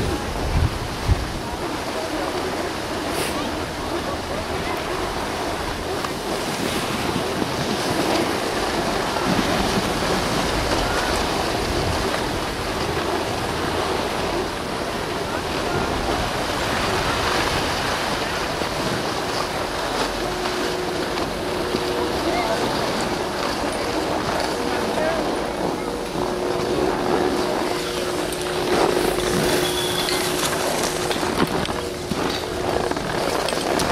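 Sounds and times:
wind rushing on microphone: 0.0s - 33.9s
skis hissing over snow: 3.0s - 3.6s.

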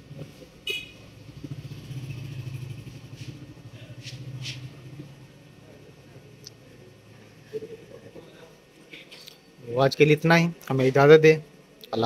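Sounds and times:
vehicle engine passing: 1.0s - 8.0s.

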